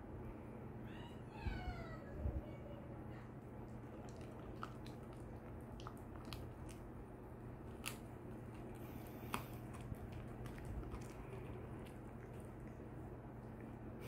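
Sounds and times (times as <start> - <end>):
dog gnawing chew bone: 3.6 - 13.9.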